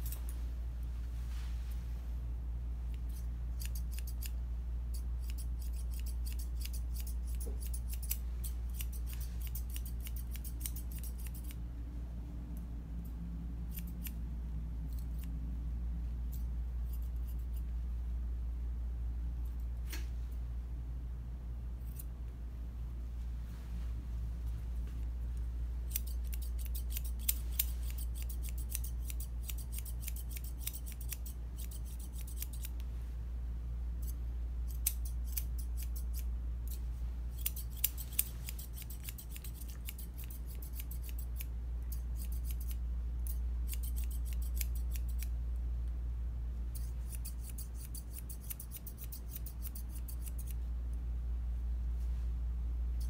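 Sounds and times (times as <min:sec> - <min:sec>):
steady low hum: 0:00.0 - 0:53.0
grooming shears snipping fur: 0:02.9 - 0:04.4, 0:05.0 - 0:11.6, 0:25.9 - 0:32.9, 0:34.0 - 0:45.3, 0:46.7 - 0:50.6.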